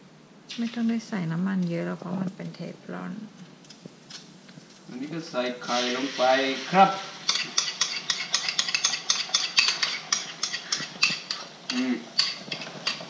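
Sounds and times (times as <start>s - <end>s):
faint sizzle: 0.0s - 13.0s
spoon scraping a bowl: 7.2s - 13.0s.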